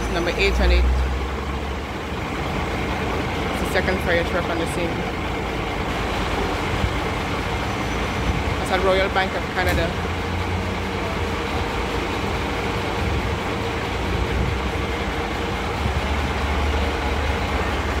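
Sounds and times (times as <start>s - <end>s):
street noise: 0.0s - 18.0s
truck engine idling: 0.0s - 18.0s.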